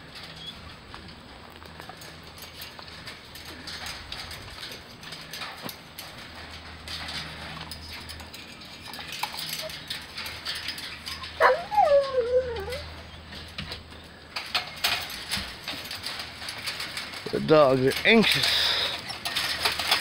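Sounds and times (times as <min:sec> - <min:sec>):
faint rustling: 0:00.0 - 0:20.0
dog whining: 0:11.1 - 0:13.2.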